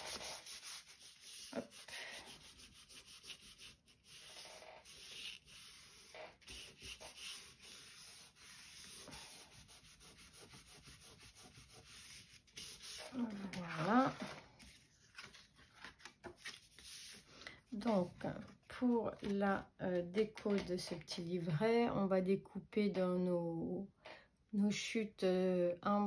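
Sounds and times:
cloth rubbing over paper: 0.0 - 15.4.

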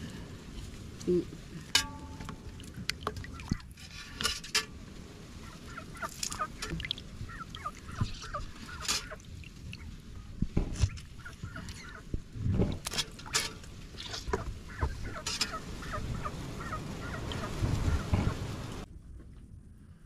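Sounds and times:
water splashing in metal basin: 1.8 - 3.7, 6.1 - 9.9
fowl calling: 5.4 - 9.9, 10.9 - 12.1, 14.0 - 18.5.

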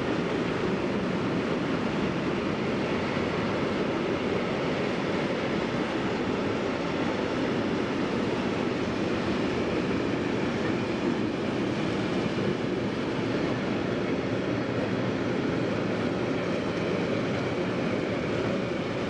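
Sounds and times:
train wheels on rails: 0.0 - 19.0.

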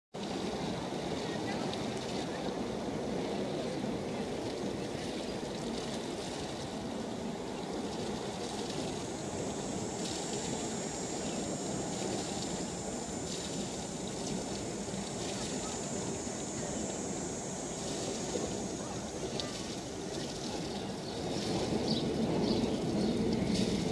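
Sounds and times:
boat engine low rumble: 0.2 - 23.9
water wash: 0.2 - 23.9
high-pitched whine: 7.8 - 20.6.

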